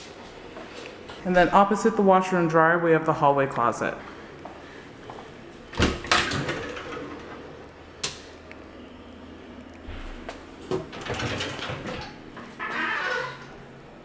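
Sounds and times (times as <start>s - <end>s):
sliding door running on track: 6.0s - 7.6s.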